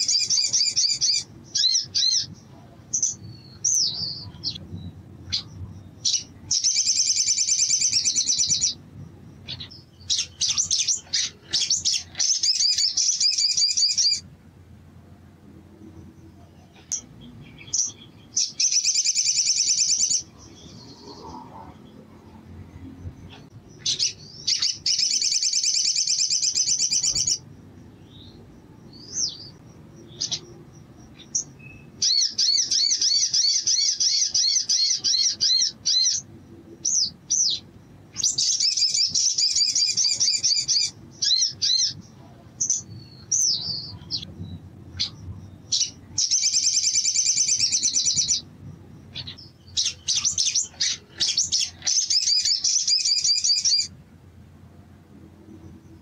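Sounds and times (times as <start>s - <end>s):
bird trilling: 0.0s - 4.6s, 5.2s - 8.8s, 9.4s - 14.3s, 16.8s - 21.8s, 23.3s - 27.4s, 28.0s - 42.0s, 45.0s - 48.5s, 49.1s - 53.9s.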